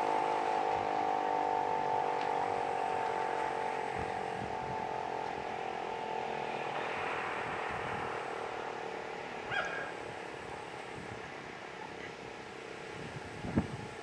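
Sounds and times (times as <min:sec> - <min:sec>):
siren wailing: 0:00.0 - 0:10.1.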